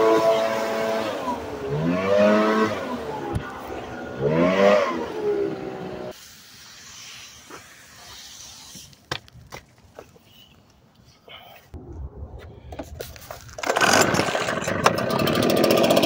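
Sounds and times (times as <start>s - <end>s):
leaf blower engine revving: 0.0s - 6.2s, 13.6s - 16.0s.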